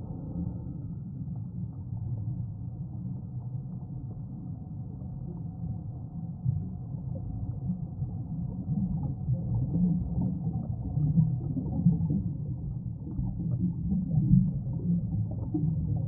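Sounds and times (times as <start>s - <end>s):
muffled underwater rumble: 0.0s - 16.0s
air bubbles gurgling: 7.2s - 16.0s.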